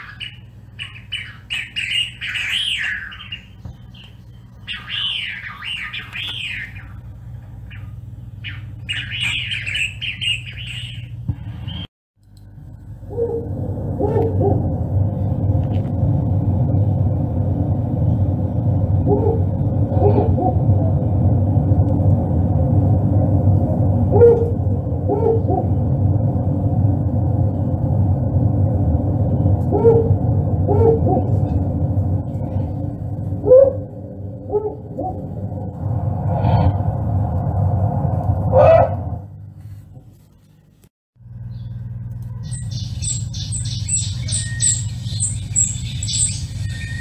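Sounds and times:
owl hooting: 0:00.0 - 0:07.0, 0:07.7 - 0:11.9, 0:42.3 - 0:47.0
steady low rumble: 0:00.0 - 0:47.0.

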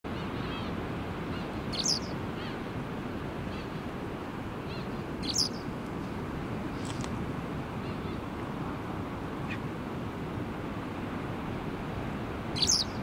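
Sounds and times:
wagtail sharp calls: 0:01.4 - 0:02.6, 0:04.7 - 0:05.7, 0:12.6 - 0:13.0.

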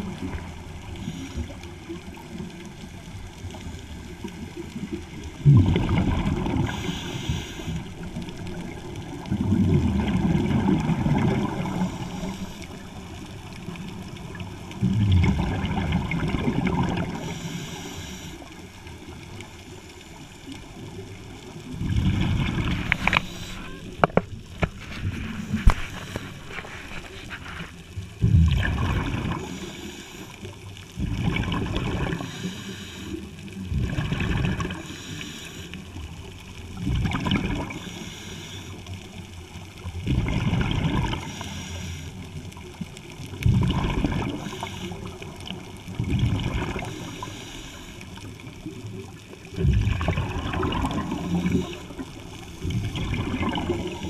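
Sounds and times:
exhaled bubbles gushing underwater: 0:00.0 - 0:54.0
scuba regulator hiss: 0:06.7 - 0:07.9, 0:17.2 - 0:18.4, 0:23.0 - 0:23.8, 0:32.2 - 0:33.2, 0:37.8 - 0:38.8, 0:41.3 - 0:42.2, 0:46.9 - 0:48.0.

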